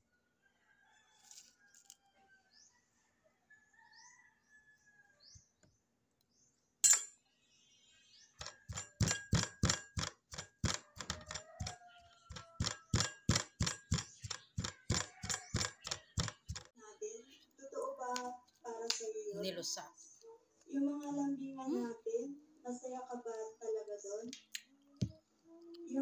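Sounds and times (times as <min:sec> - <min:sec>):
wooden pestle pounding in mortar: 0:08.4 - 0:16.7.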